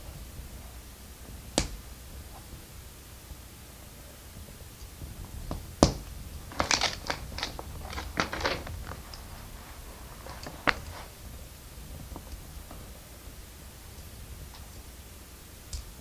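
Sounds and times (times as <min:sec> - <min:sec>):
plastic pieces clicking and rattling: 0:06.5 - 0:09.3.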